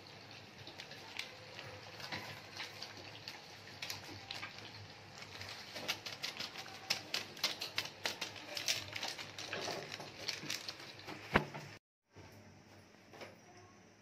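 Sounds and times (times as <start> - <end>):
spice sachet tapped and shaken: 5.2 - 11.3.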